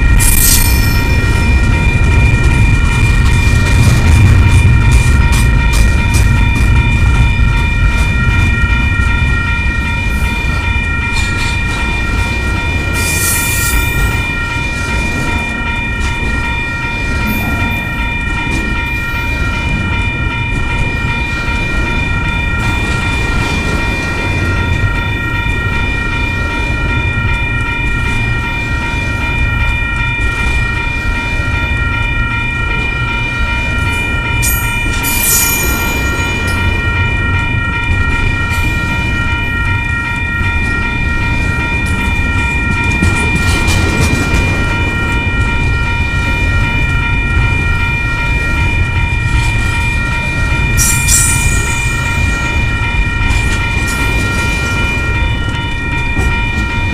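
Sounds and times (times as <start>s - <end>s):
train wheels rumbling on rail: 0.0s - 56.9s
high-pitched whine: 16.4s - 19.6s.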